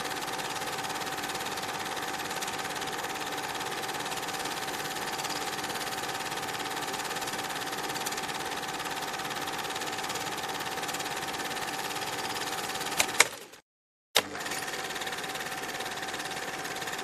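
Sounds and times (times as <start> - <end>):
projector whine: 0.0 - 13.3
film projector clattering: 0.0 - 13.6, 14.2 - 17.0.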